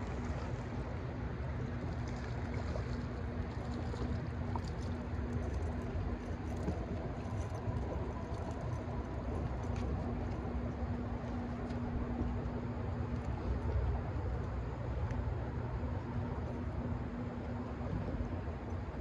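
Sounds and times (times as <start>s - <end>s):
river rumbling around a boat: 0.0s - 19.0s
steady low hum: 0.0s - 19.0s
faint light ticks: 11.2s - 12.4s, 13.1s - 15.2s.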